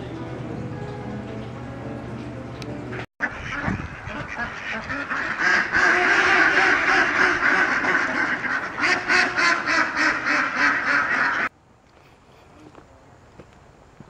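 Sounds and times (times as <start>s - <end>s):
ducks quacking: 2.9s - 11.5s.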